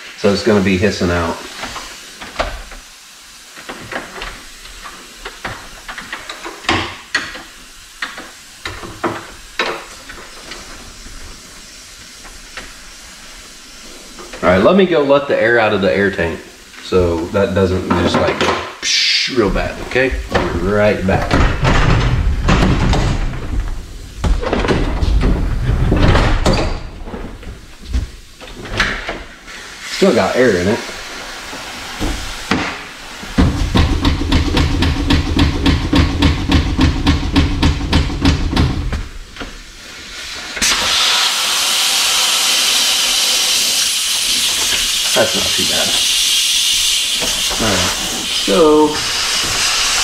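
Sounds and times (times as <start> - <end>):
compressed air hissing in spurts: 0.0 - 18.2, 18.8 - 24.2, 26.8 - 37.9, 38.8 - 50.0
bus door knocking and rattling: 33.4 - 39.5.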